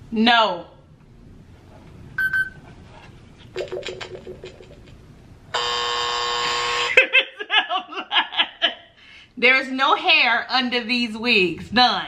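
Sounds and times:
quick electronic tones: 0:02.2 - 0:02.6
short high beep: 0:02.2 - 0:02.6
loud steady buzz: 0:05.5 - 0:07.0.

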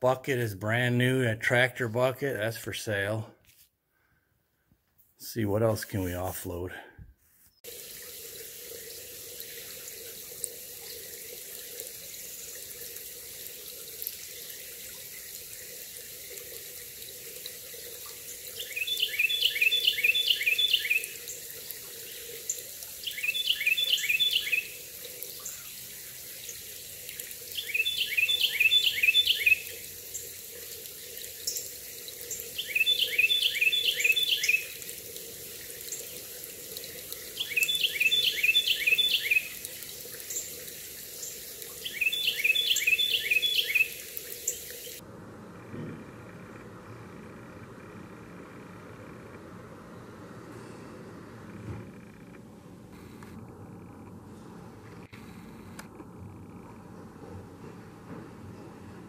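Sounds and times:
stream running over gravel: 0:07.6 - 0:45.0
songbird whistling: 0:18.6 - 0:21.2, 0:23.0 - 0:24.8, 0:27.6 - 0:29.7, 0:32.6 - 0:34.8, 0:37.4 - 0:39.6, 0:41.8 - 0:45.0.

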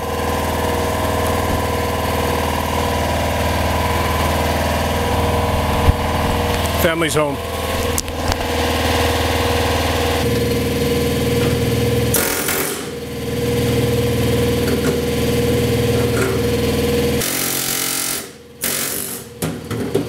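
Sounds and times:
pneumatic air hammer chattering: 0:12.1 - 0:13.0, 0:17.2 - 0:19.5.

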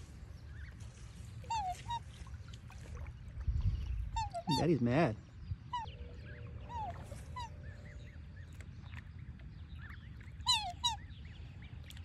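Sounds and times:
swans calling: 0:00.0 - 0:03.1, 0:04.0 - 0:04.8, 0:05.7 - 0:08.4, 0:09.8 - 0:11.2.

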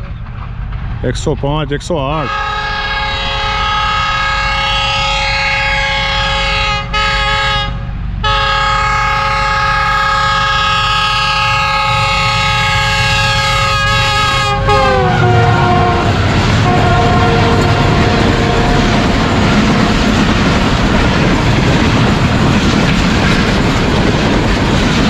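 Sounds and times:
train rumble: 0:00.0 - 0:25.0
locomotive air horn: 0:02.2 - 0:19.1.

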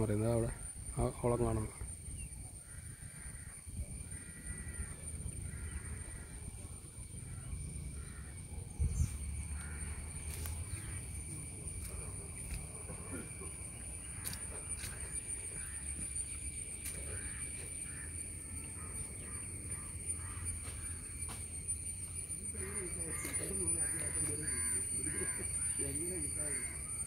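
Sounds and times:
high-pitched insect drone: 0:00.0 - 0:27.0
low wind rumble: 0:01.7 - 0:12.8.

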